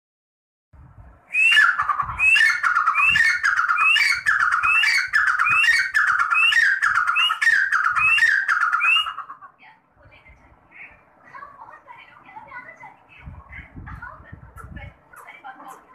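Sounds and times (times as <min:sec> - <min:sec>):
francolin calling: 0:01.3 - 0:09.5.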